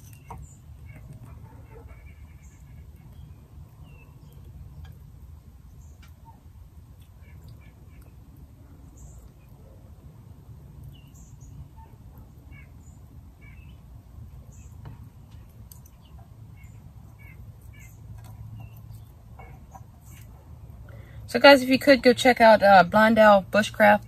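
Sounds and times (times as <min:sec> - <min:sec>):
low background hum: 0:00.0 - 0:24.0
small birds chirping: 0:00.0 - 0:24.0
small fire crackling: 0:10.2 - 0:21.2.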